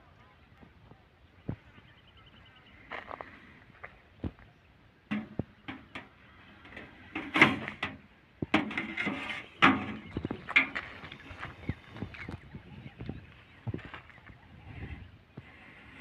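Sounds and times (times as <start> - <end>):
metal hook scraping tin box: 8.6 - 10.0.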